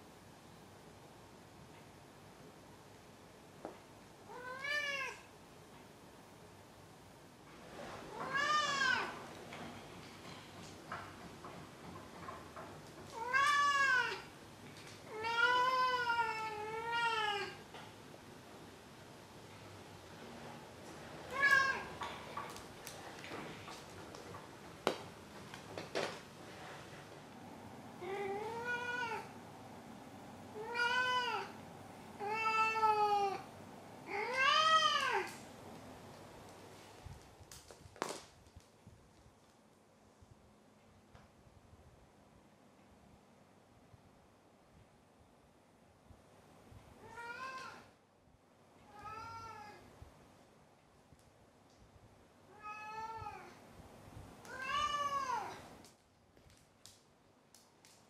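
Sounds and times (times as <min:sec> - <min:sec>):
cat meowing: 0:04.3 - 0:05.3, 0:08.1 - 0:09.2, 0:13.2 - 0:14.3, 0:15.1 - 0:17.6, 0:28.0 - 0:29.4, 0:30.6 - 0:31.6, 0:34.1 - 0:35.4, 0:47.0 - 0:47.9, 0:48.9 - 0:49.9, 0:52.5 - 0:53.6, 0:54.4 - 0:55.6.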